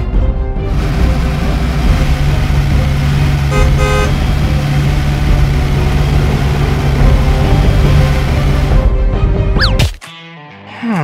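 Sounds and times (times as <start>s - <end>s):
car engine droning: 0.6s - 9.1s
car horn honking: 3.4s - 4.4s.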